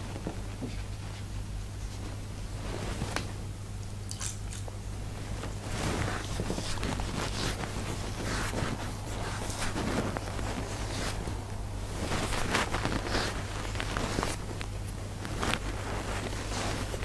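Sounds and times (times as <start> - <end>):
steady low hum: 0.0 - 17.0
cotton pad rubbing skin: 5.1 - 17.0.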